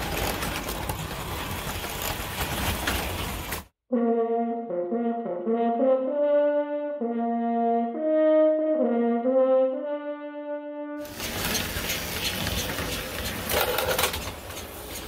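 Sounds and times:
brass instrument melody: 0:03.8 - 0:11.1
model train running noise: 0:11.0 - 0:15.0.

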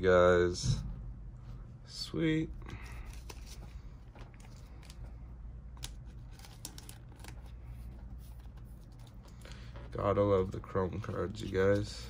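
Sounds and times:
trading cards clicking and scraping: 0:02.7 - 0:12.0.

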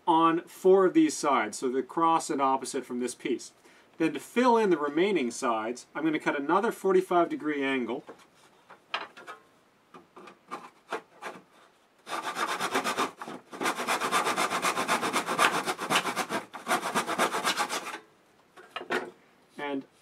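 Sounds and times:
hand saw sawing strokes: 0:10.5 - 0:18.0.

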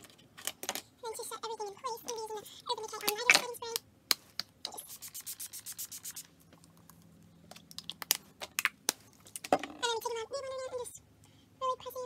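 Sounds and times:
spray bottle spritzes: 0:04.7 - 0:06.3.

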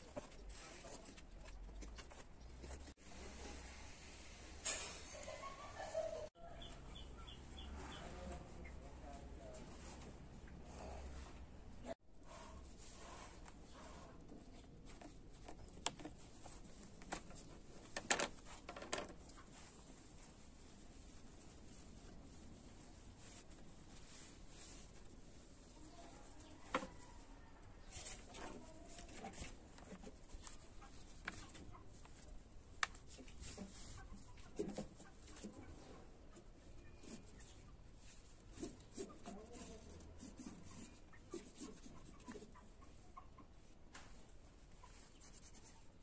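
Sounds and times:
pencil tracing: 0:38.0 - 0:42.5, 0:45.2 - 0:45.8.

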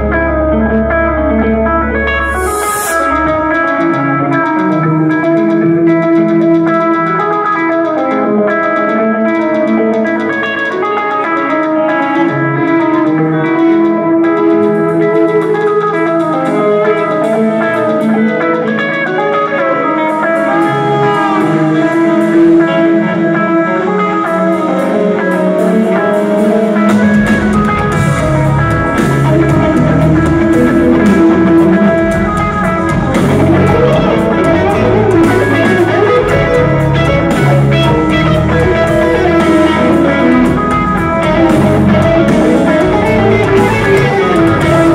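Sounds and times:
electric guitar lines: 0:00.0 - 0:44.9
drums and cymbals: 0:02.2 - 0:04.7, 0:20.1 - 0:44.9
bass and kick drum: 0:27.1 - 0:44.9.

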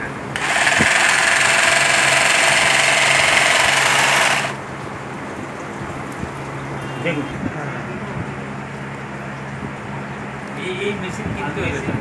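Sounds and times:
sealing machine buzzing: 0:00.4 - 0:04.6.

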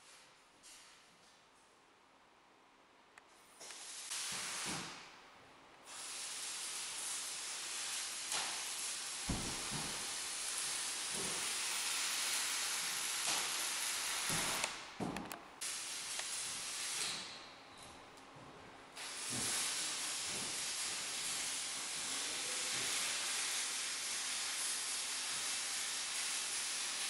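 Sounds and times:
arc welding noise: 0:03.6 - 0:05.2, 0:05.8 - 0:17.5, 0:18.9 - 0:27.0.

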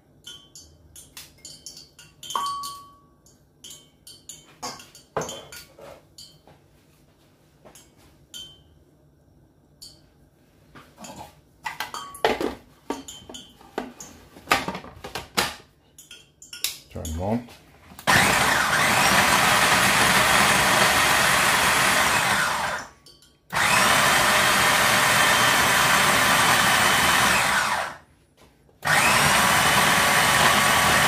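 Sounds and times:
utensils and dishes clinking: 0:00.2 - 0:06.5, 0:11.0 - 0:14.8, 0:15.9 - 0:17.5, 0:23.0 - 0:23.5.

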